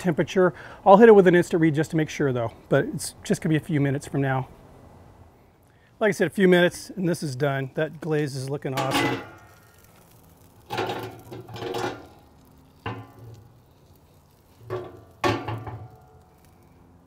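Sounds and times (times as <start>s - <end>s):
sharp metal clanks: 8.8s - 9.7s.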